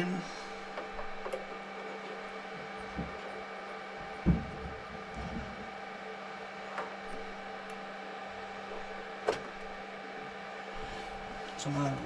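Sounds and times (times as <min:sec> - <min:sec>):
steady hum: 0:00.0 - 0:12.0
parts knocking on workbench: 0:04.2 - 0:05.5.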